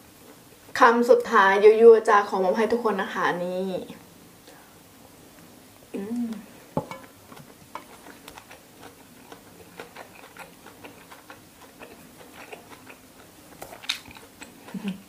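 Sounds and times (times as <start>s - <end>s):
chewing mouth clicks: 7.3s - 15.0s.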